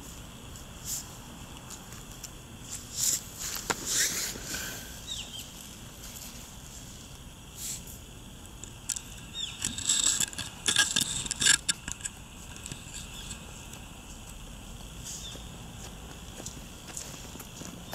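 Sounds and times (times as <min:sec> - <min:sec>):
steady outdoor hiss: 0:00.0 - 0:17.9
rustling and crackling clicks: 0:08.4 - 0:14.9.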